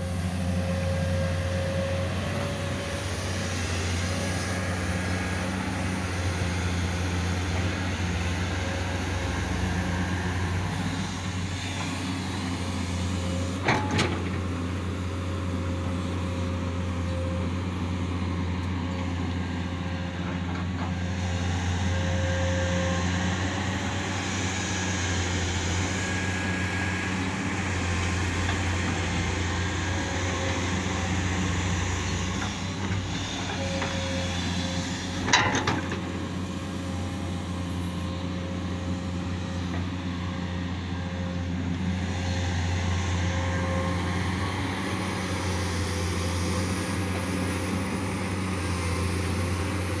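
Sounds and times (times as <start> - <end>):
excavator diesel engine running: 0.0 - 50.0.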